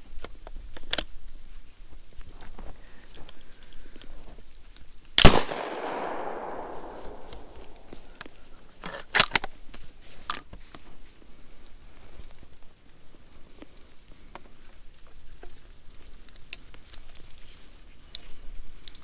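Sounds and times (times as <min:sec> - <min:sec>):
shotgun shot echoing: 0:05.2 - 0:08.2
sharp clicks: 0:05.2 - 0:08.3.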